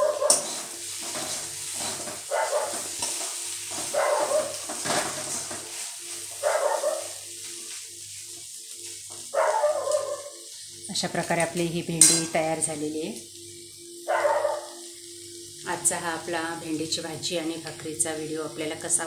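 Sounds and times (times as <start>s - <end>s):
dog barking: 0.0s - 0.5s, 2.3s - 2.8s, 3.9s - 4.6s, 6.4s - 7.2s, 9.3s - 10.4s, 14.1s - 14.8s
oil sizzling: 0.0s - 19.0s.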